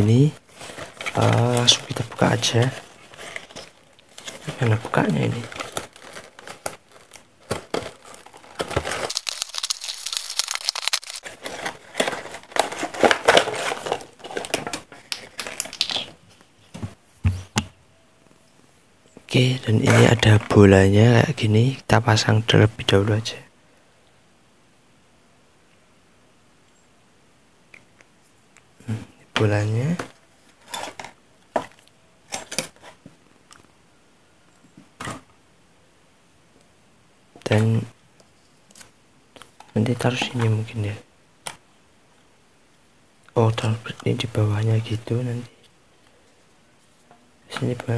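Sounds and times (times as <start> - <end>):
plastic wrapping rustling: 0.2 - 16.1
plastic packaging crinkling: 0.5 - 16.1.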